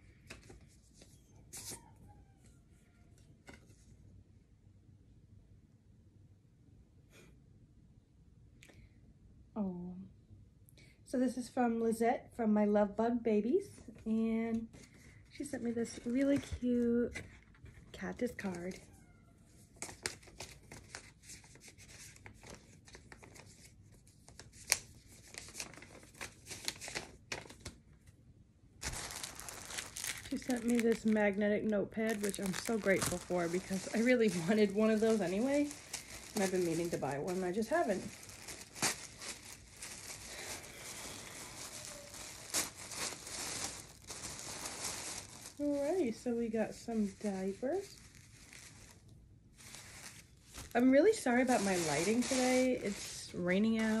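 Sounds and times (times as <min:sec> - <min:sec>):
packaging rustling and crinkling: 0:19.8 - 0:27.8, 0:28.8 - 0:54.0.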